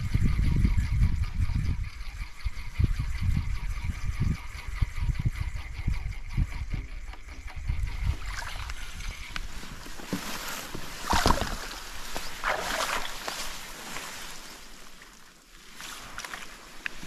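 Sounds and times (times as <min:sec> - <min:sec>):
rustling: 0:08.6 - 0:17.0.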